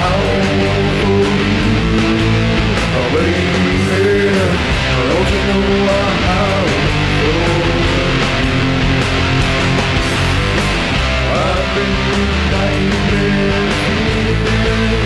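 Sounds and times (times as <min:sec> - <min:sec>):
electric guitar bent notes: 0:00.0 - 0:15.0
rockabilly band playing: 0:00.0 - 0:15.0.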